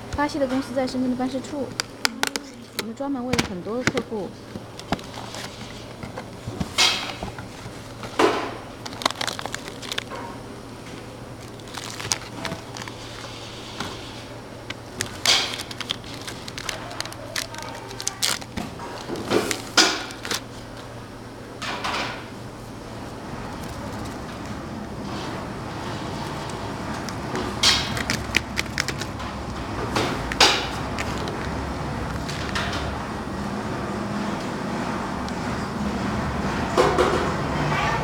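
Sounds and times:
cardboard box rustling and scraping: 0:04.6 - 0:08.0.

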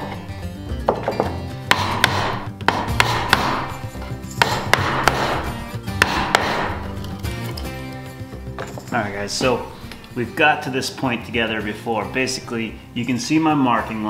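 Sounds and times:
background music: 0:00.0 - 0:14.0
mallet knocking on chisel: 0:00.9 - 0:03.8, 0:04.4 - 0:06.8.

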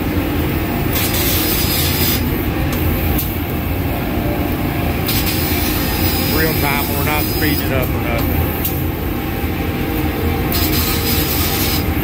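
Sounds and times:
loud machine rumble: 0:00.0 - 0:12.0
laser cutting head hissing: 0:05.1 - 0:08.3, 0:10.5 - 0:11.9.

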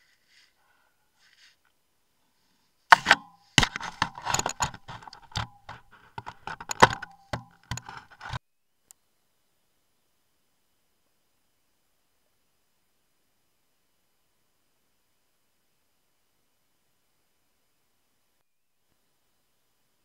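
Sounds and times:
knocks and scrapes on camera housing: 0:02.9 - 0:08.4.

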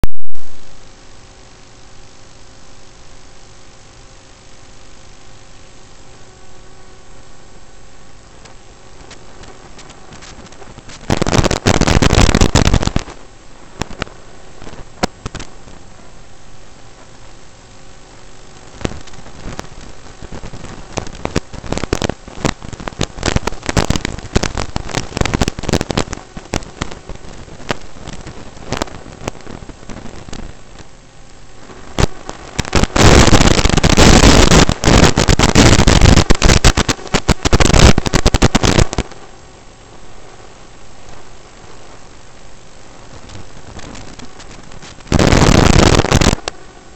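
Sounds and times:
crackling radio static: 0:00.0 - 0:46.9.

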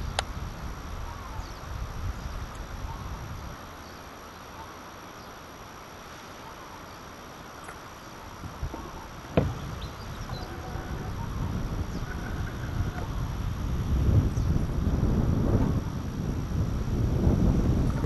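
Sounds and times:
faint chirping: 0:00.9 - 0:13.5
knocks: 0:08.6 - 0:09.7.

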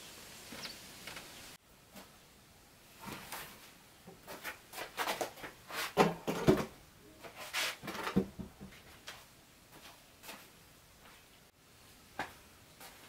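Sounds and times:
shuffling footsteps: 0:03.0 - 0:06.2, 0:07.2 - 0:11.4, 0:12.2 - 0:13.0.

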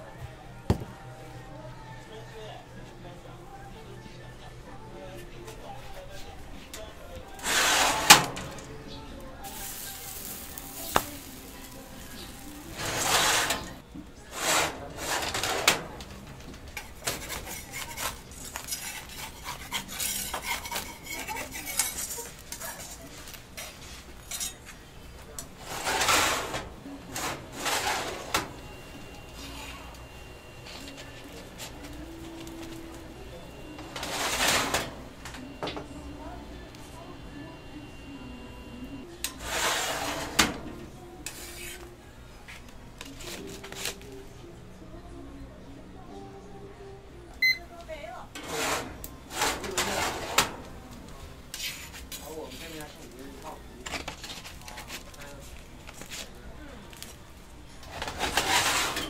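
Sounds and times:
metal tray sliding out of oven: 0:07.4 - 0:08.6, 0:09.5 - 0:16.1, 0:25.6 - 0:28.6, 0:33.8 - 0:35.0, 0:39.4 - 0:40.8, 0:48.4 - 0:50.7, 0:57.9 - 0:59.0
spatula and tongs scraping tray: 0:07.4 - 0:08.7, 0:09.5 - 0:16.0, 0:16.8 - 0:24.6, 0:25.6 - 0:28.7, 0:33.8 - 0:35.0, 0:39.3 - 0:41.9, 0:48.4 - 0:50.7, 0:57.9 - 0:59.0
tongs scraping and tapping: 0:16.5 - 0:24.6.

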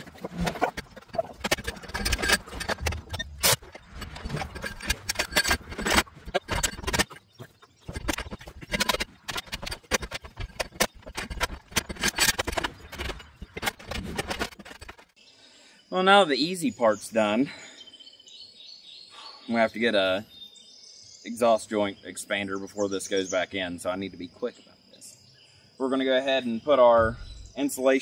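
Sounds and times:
tools clanking on exhaust pipe: 0:00.0 - 0:15.0.

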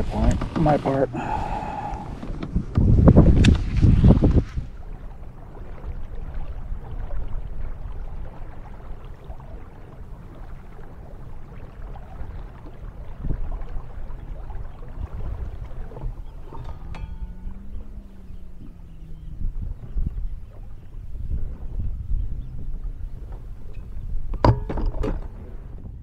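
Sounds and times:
water lapping against hull: 0:00.0 - 0:26.0
wind rushing over microphone: 0:01.1 - 0:08.4, 0:13.0 - 0:26.0.

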